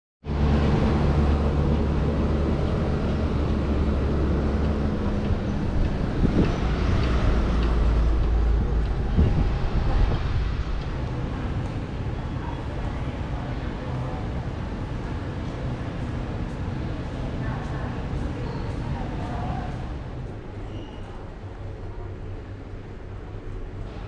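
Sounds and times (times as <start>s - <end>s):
machine rumble and hum: 0.2s - 12.2s.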